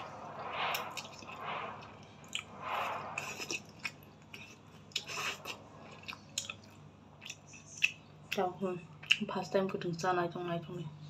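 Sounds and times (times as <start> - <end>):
person slurping noodles: 0.0 - 5.6
wet mouth clicks: 3.2 - 8.4.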